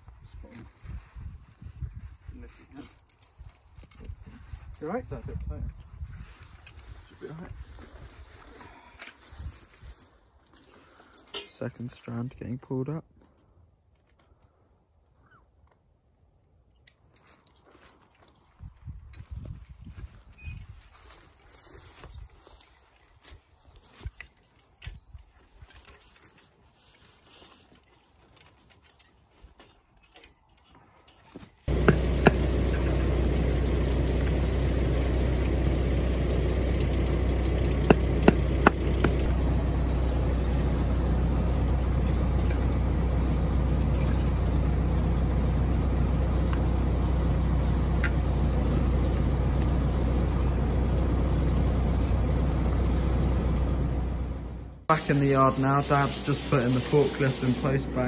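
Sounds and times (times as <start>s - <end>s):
diesel engine idling: 31.7s - 58.0s
sharp knocks: 31.8s - 32.5s, 37.8s - 39.3s.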